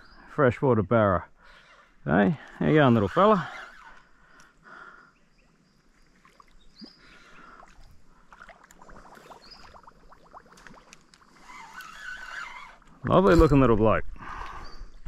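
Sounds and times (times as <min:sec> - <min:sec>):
high bird chirps: 0:05.1 - 0:07.6, 0:09.2 - 0:10.0
small water splashes and drips: 0:06.0 - 0:12.1.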